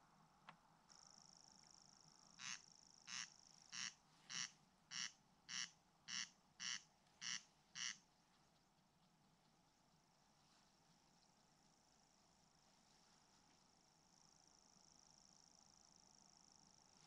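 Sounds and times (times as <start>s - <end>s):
bird reeling trill: 2.4s - 8.0s
corncrake rasping call: 2.4s - 8.0s.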